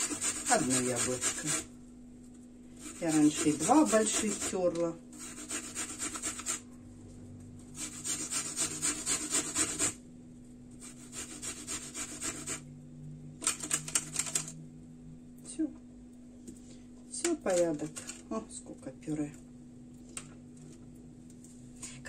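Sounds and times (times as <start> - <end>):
apple scraping on metal grater: 0.0 - 1.7, 2.7 - 6.6, 7.8 - 10.0, 10.8 - 12.6.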